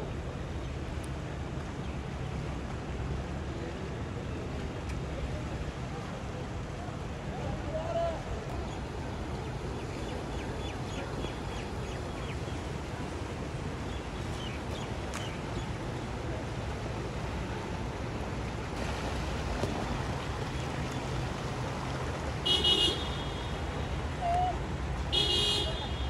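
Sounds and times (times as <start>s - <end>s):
vehicle engines rumbling: 0.0s - 26.0s
water washing: 12.6s - 26.0s.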